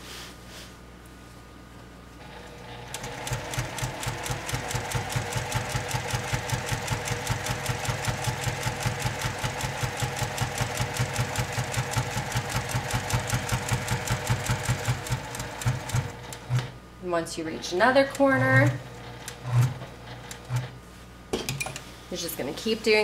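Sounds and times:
sewing machine stitching: 0:02.2 - 0:16.7, 0:17.6 - 0:20.8.

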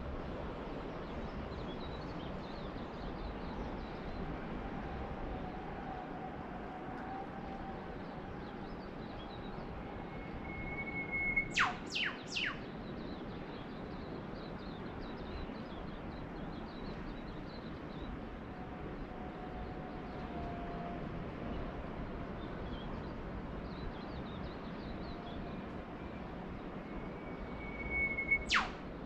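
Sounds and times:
small birds twittering: 0:08.4 - 0:18.2, 0:26.6 - 0:28.8
long bird whistle: 0:09.1 - 0:12.7, 0:26.8 - 0:28.9
bird whip-crack call: 0:11.2 - 0:12.6, 0:27.8 - 0:28.8.

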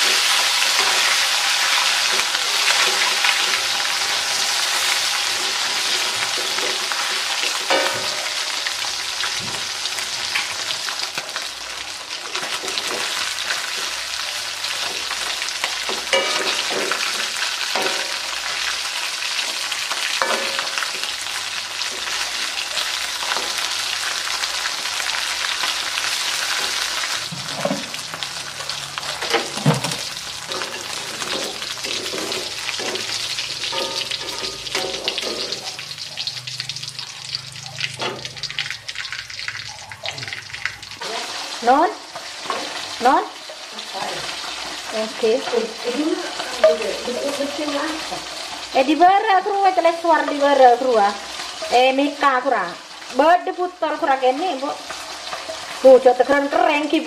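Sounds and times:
meat sizzling in oil: 0:00.0 - 0:57.0
metal spatula scraping a pan: 0:26.3 - 0:38.7.

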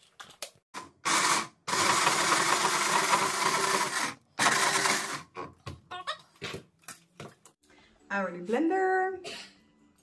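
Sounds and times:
hand blender grinding: 0:00.8 - 0:05.4.

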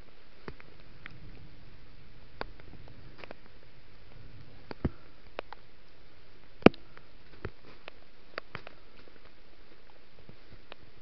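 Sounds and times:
twigs and branches snapping: 0:06.6 - 0:10.0.

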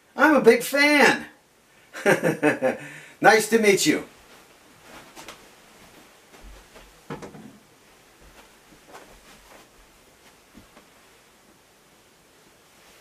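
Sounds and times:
footsteps knocks and thuds: 0:05.0 - 0:07.6, 0:08.2 - 0:10.9.

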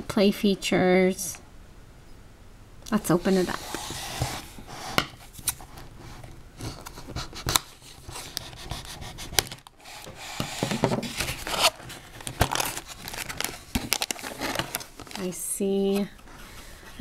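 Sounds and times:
cardboard rubbing and scraping: 0:03.1 - 0:15.2
scissors cutting cardboard: 0:06.7 - 0:14.8.

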